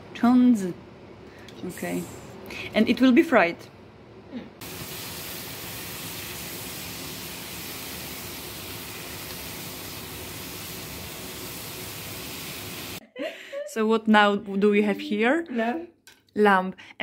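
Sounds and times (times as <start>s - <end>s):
vegetables sizzling in a frying pan: 4.6s - 13.0s.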